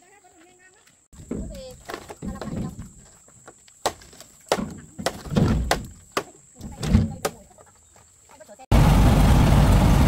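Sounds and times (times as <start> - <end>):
knocks and thuds: 3.8 - 7.4.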